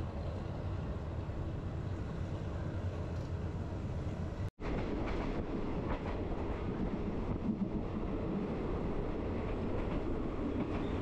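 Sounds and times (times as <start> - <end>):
train carriage rumble: 0.0 - 11.0
faint clacks of train wheels: 9.3 - 11.0.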